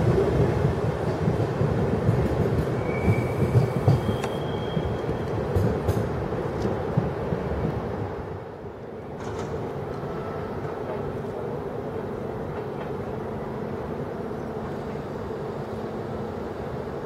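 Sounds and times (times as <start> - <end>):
train rumbling over points: 0.0 - 8.2.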